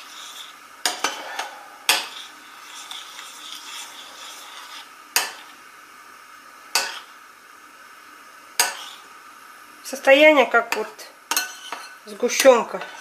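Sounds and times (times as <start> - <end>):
spoon scraping glass bowl: 0.0 - 5.5, 11.3 - 13.0.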